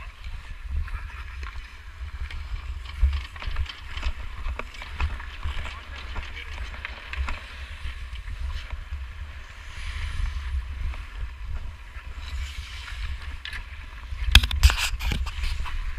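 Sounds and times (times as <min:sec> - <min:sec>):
wind buffeting microphone: 0:00.0 - 0:15.9
skate blades carving ice: 0:00.1 - 0:09.0, 0:12.0 - 0:15.9.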